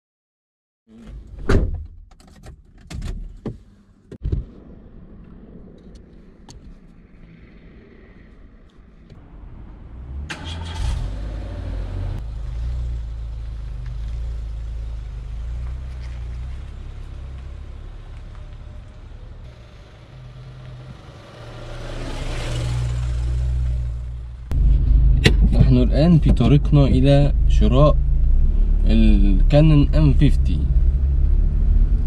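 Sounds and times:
car engine starting and running: 0.9s - 32.0s
car tyres rolling past: 4.2s - 28.9s.

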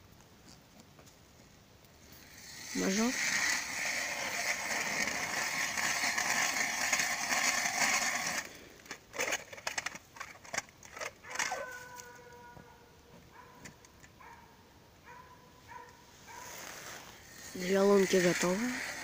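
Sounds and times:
ice auger grinding: 2.1s - 12.1s, 16.3s - 19.0s.

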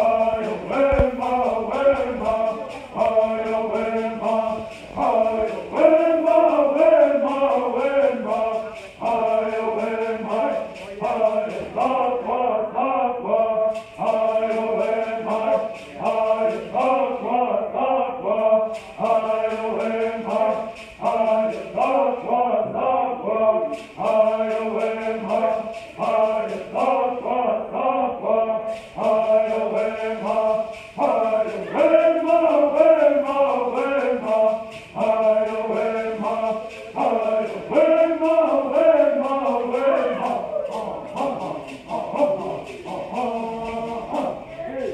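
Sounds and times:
gourd rattles shaking: 0.0s - 22.6s, 23.4s - 27.5s, 28.3s - 44.9s
men singing in unison: 0.0s - 44.9s.

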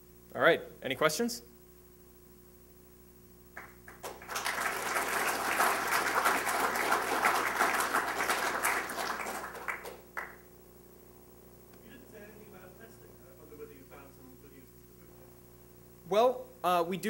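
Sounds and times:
audience applauding: 3.6s - 10.4s.

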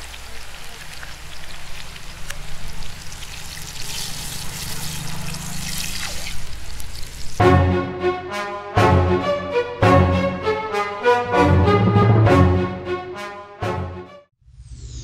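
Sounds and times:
food frying in hot oil: 0.0s - 7.4s.

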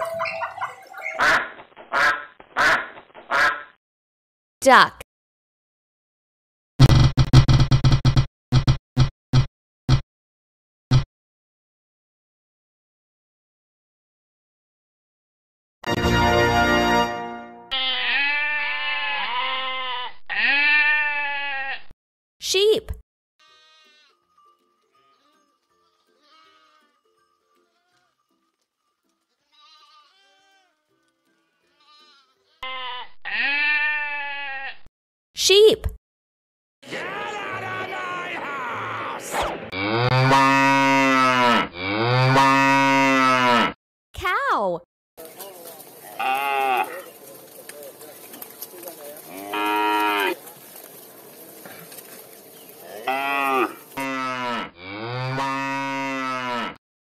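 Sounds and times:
sheep bleating: 17.7s - 21.9s, 23.4s - 24.2s, 24.9s - 27.0s, 27.6s - 28.3s, 29.2s - 34.9s, 46.0s - 47.2s, 49.3s - 50.4s, 52.8s - 56.8s
cattle mooing: 39.7s - 43.8s, 46.0s - 47.2s, 49.2s - 50.5s, 52.8s - 56.8s.

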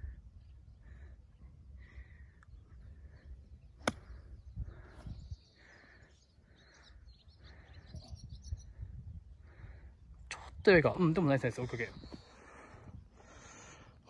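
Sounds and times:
wind rumble on microphone: 0.0s - 5.6s, 7.4s - 11.1s
bird chirping: 2.4s - 9.0s
golf club striking ball: 3.8s - 4.2s.

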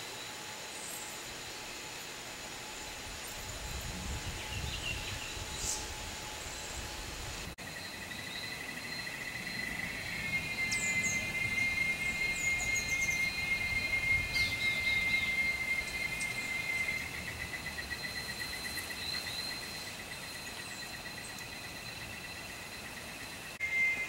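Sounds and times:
insects droning: 0.0s - 24.0s.

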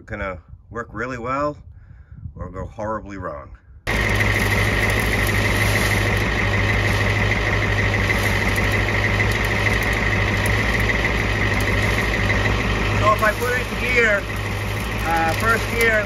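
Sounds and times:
car engine idling: 3.9s - 16.0s.

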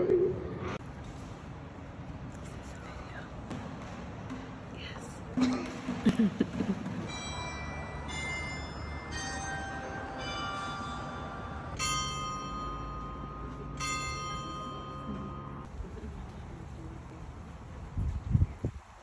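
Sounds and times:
tuned bells chiming: 7.0s - 15.7s.

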